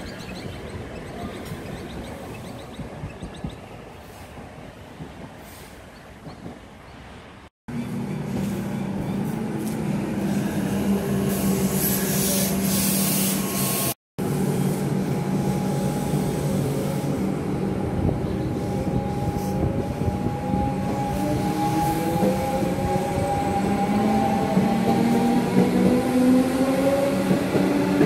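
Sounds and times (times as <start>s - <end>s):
train hiss: 10.2s - 17.3s.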